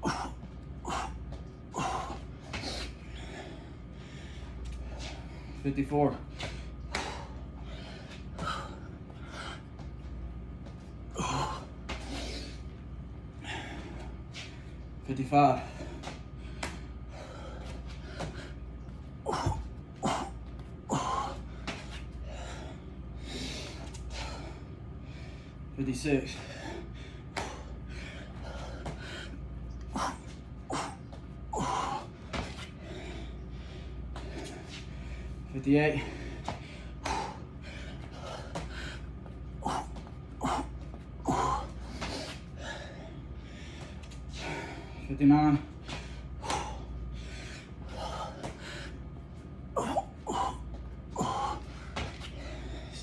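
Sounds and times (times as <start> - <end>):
man breathing hard: 0.0 - 53.0.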